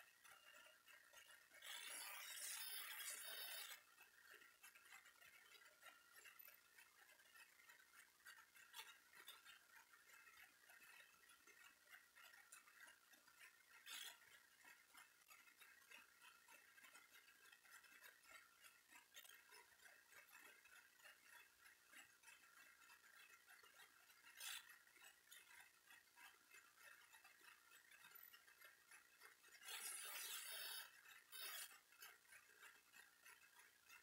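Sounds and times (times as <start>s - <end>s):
soft scattered clicks: 0.0s - 34.0s.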